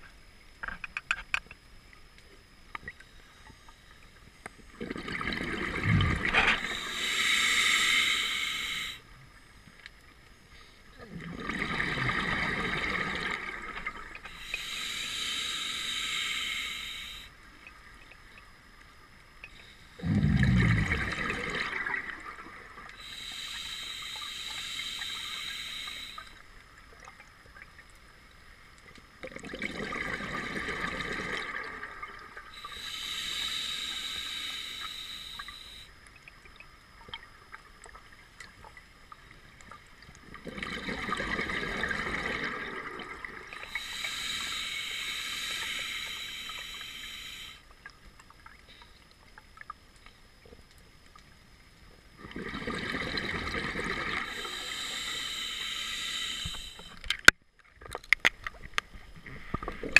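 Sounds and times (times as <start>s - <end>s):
exhaust bubbles bubbling: 4.8s - 6.8s, 11.0s - 14.2s, 20.0s - 23.0s, 29.2s - 32.4s, 40.4s - 43.6s, 52.2s - 54.4s
hissing regulator inhale: 5.8s - 9.1s, 14.2s - 17.4s, 19.5s - 26.5s, 32.2s - 35.9s, 43.5s - 47.7s, 53.6s - 57.0s.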